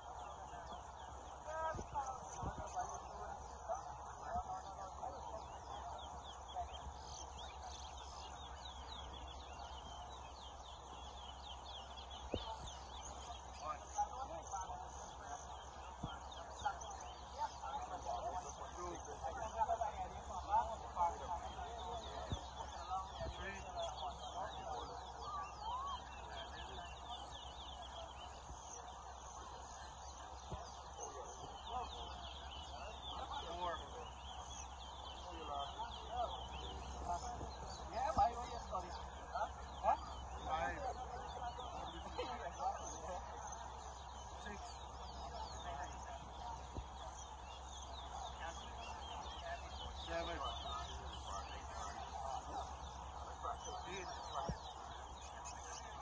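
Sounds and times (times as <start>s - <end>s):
finches twittering: 0.0s - 56.0s.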